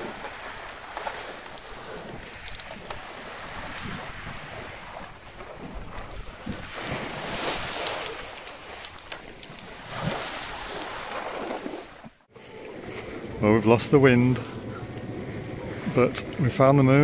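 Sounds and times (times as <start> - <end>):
wind buffeting microphone: 0.0 - 11.5
sea water washing along hull: 0.0 - 17.0.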